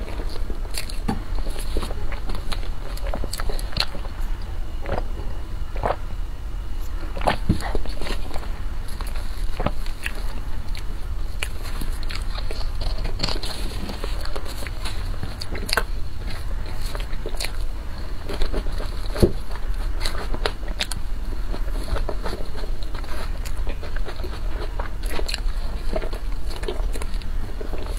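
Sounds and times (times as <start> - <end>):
chewing clicks: 0.0 - 5.1, 6.8 - 27.9
plastic spoon scraping cake: 6.8 - 27.9.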